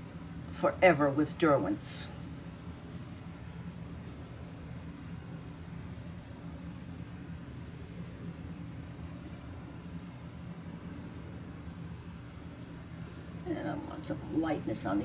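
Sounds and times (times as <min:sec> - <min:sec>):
steady low hum: 0:00.0 - 0:15.0
paintbrush scrubbing paper: 0:00.1 - 0:08.4.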